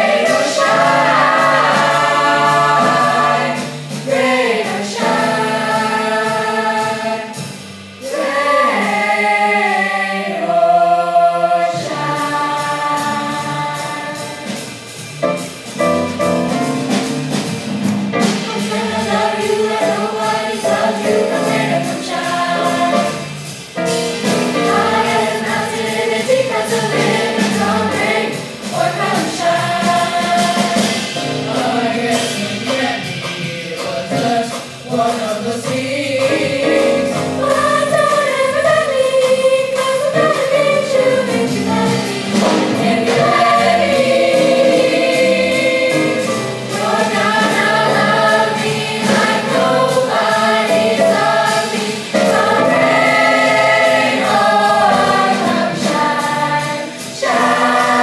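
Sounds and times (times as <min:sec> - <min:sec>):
choir singing jazz in harmony: 0:00.0 - 0:58.0.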